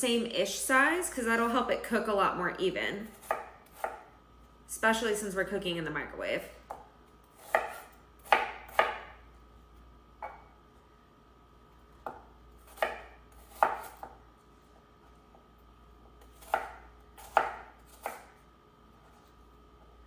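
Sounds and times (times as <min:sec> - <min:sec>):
knife chopping on wooden board: 0:03.2 - 0:04.0, 0:06.7 - 0:09.2, 0:10.2 - 0:10.5, 0:12.0 - 0:14.2, 0:16.2 - 0:18.3.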